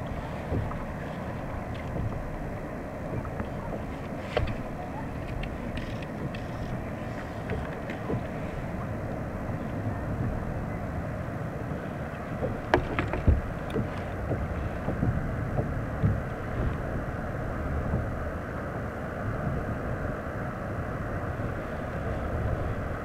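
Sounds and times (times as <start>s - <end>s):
wind buffeting microphone: 0.0s - 23.0s
sharp clicks and knocks: 12.4s - 16.2s.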